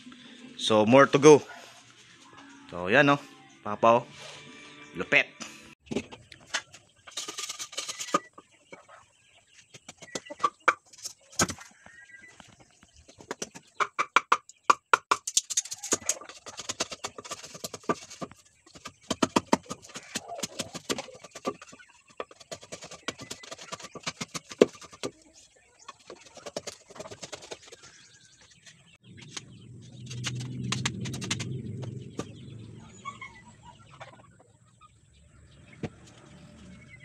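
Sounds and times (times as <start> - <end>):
faint bird calls: 31.2 - 37.0.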